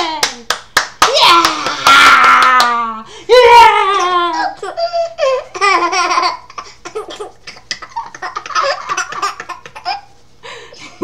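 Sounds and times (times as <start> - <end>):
woman laughing: 2.6 - 6.3
baby laughing: 3.6 - 10.2.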